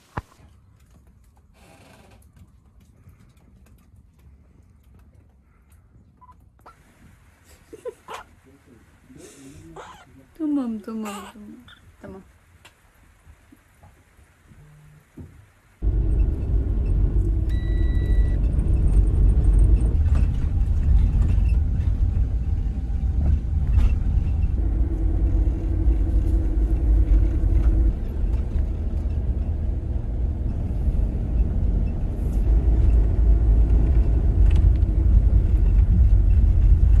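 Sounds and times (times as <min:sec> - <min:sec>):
car engine and road noise: 0:12.4 - 0:37.0
short high beep: 0:17.5 - 0:18.4.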